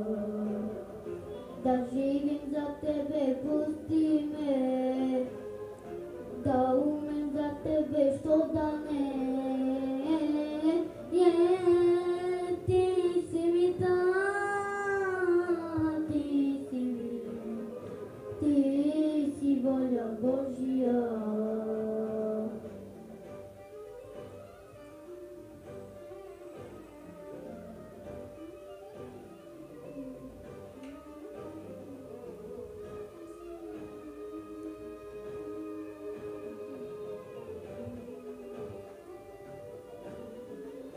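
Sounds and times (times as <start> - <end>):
boy singing: 0.0 - 5.5, 6.4 - 22.8, 30.9 - 40.9.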